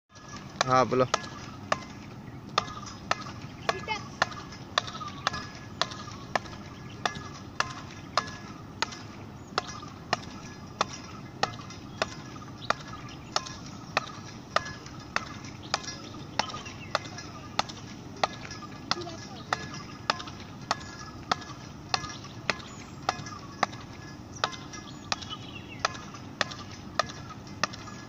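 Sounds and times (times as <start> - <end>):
racket striking tethered ball: 0.1 - 28.0.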